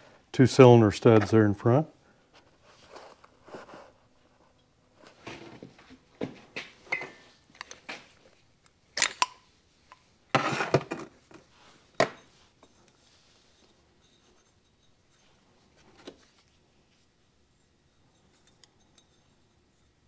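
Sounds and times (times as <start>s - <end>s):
metal parts clinking on workbench: 9.0s - 9.4s.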